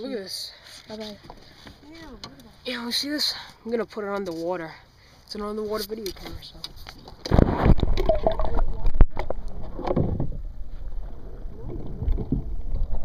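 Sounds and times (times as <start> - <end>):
muffled underwater sloshing: 6.4 - 13.0
microphone plunging into water: 6.9 - 13.0.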